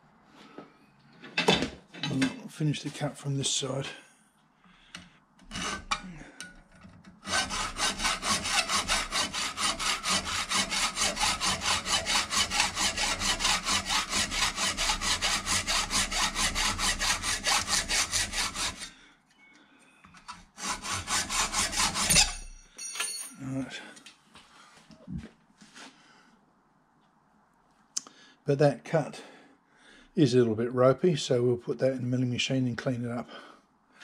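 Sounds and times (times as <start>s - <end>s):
hacksaw cutting metal: 5.4s - 6.6s, 7.2s - 18.9s, 20.6s - 22.6s.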